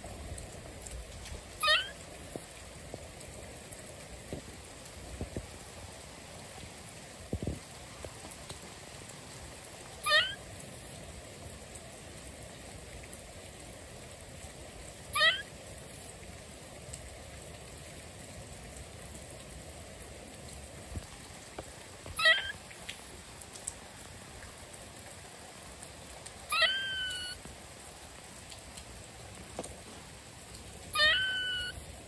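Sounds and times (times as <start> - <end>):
rain pattering: 0.0 - 32.0
squirrel squeaky chirps: 1.6 - 2.1, 10.0 - 10.6, 15.2 - 15.6, 22.2 - 22.7, 26.5 - 27.4, 31.0 - 31.8.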